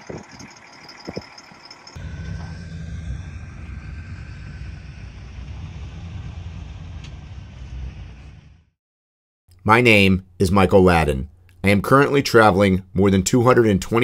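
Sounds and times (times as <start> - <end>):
vehicle engines rumbling: 2.0 - 8.6.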